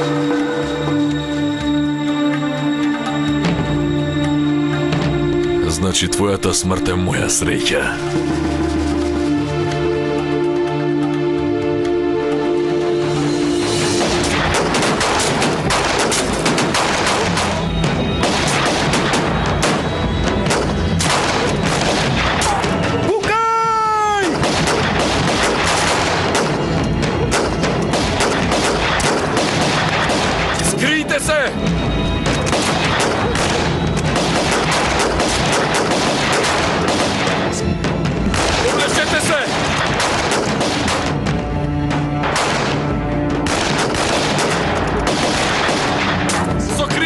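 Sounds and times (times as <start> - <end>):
dramatic music: 0.0 - 47.0
rapid gunshots: 14.0 - 22.9, 24.2 - 30.6, 32.4 - 37.6, 38.3 - 41.4, 42.2 - 46.5
dense gunfire: 14.0 - 23.0, 24.2 - 30.6, 32.3 - 37.6, 38.3 - 41.4, 42.2 - 46.5.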